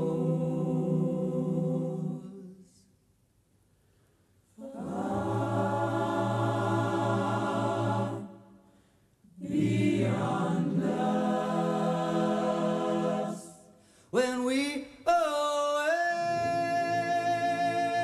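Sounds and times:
choir singing held chords: 0:00.0 - 0:02.8, 0:04.6 - 0:08.6, 0:09.3 - 0:13.8, 0:16.2 - 0:18.0.

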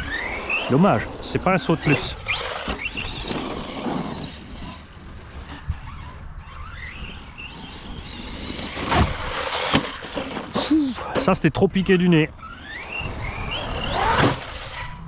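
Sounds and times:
electric motor whining: 0:00.0 - 0:11.2, 0:11.9 - 0:15.0
toy truck landing thud: 0:08.7 - 0:11.3.

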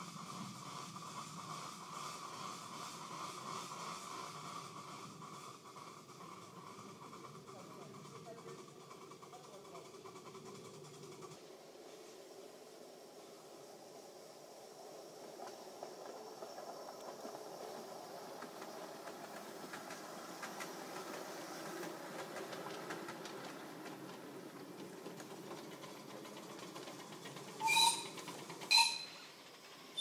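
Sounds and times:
miniature train wheels rumbling: 0:00.0 - 0:30.0
short shrill squeaks: 0:27.6 - 0:29.3.

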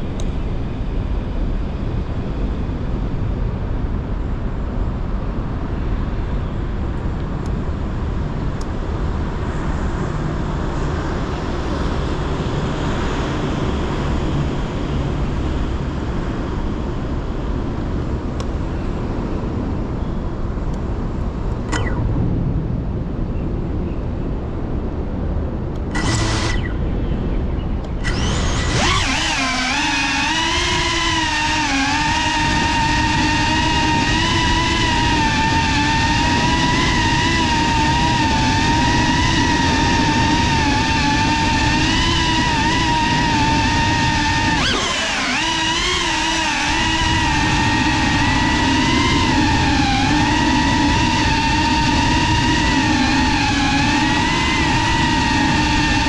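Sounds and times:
steady low rumble: 0:14.3 - 0:45.2
drone motors whining: 0:21.4 - 0:23.3, 0:25.7 - 0:56.0.

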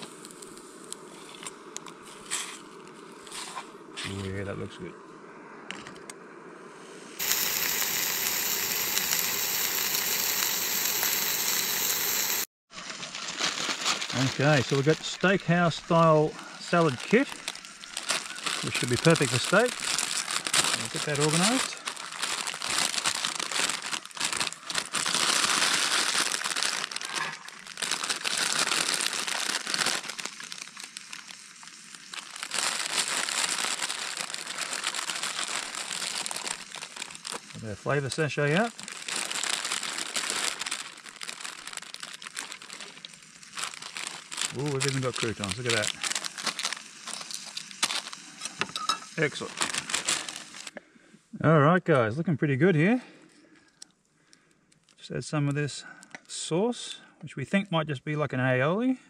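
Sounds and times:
plastic packaging crinkling: 0:00.0 - 0:03.0, 0:07.2 - 0:50.8
steak sizzling in a frying pan: 0:07.2 - 0:50.7.

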